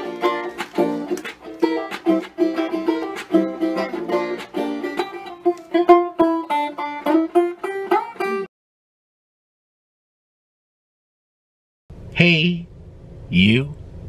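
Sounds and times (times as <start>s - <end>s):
plucked strings theme music: 0.0s - 8.5s.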